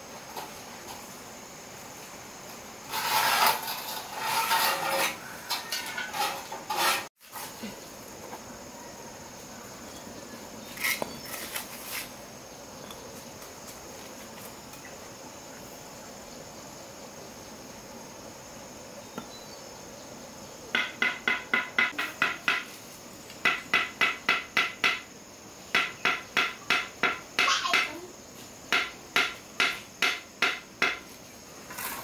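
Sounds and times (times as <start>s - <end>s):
crickets chirping: 0.0s - 32.0s
hand tool scraping cement mortar: 2.9s - 7.6s, 10.7s - 12.1s, 31.6s - 32.0s.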